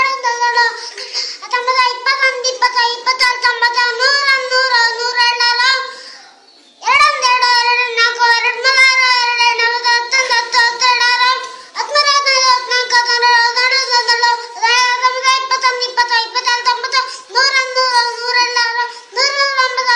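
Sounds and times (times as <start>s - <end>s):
boy singing high notes: 0.0s - 6.2s, 6.8s - 19.9s
boy breathing: 0.8s - 1.5s, 5.8s - 6.5s, 11.5s - 11.8s, 17.0s - 17.4s, 18.9s - 19.2s.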